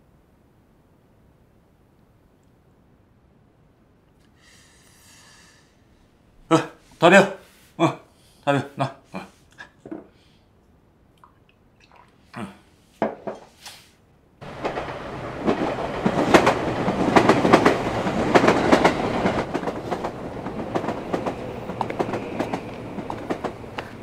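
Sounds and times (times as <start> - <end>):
train rumbling over bridge: 14.4 - 24.0
train wheels clickety-clack: 14.4 - 24.0.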